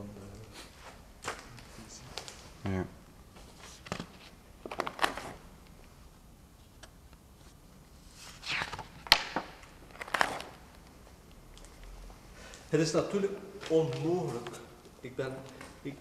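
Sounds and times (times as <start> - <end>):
paper rustling: 3.3 - 5.4, 6.7 - 10.8.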